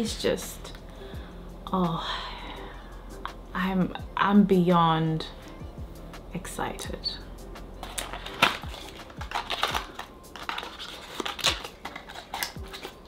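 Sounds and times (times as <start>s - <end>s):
faint background music: 0.0s - 13.0s
stiff card scraping and rustling: 7.8s - 13.0s.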